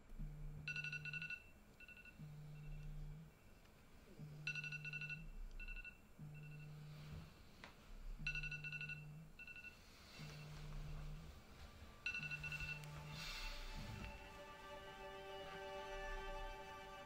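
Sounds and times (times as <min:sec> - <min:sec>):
phone vibrating on wooden table: 0:00.0 - 0:03.4, 0:04.1 - 0:07.4, 0:08.0 - 0:14.3
phone alarm ringtone beeps: 0:00.7 - 0:03.0, 0:04.5 - 0:07.0, 0:08.2 - 0:11.3, 0:12.0 - 0:14.3.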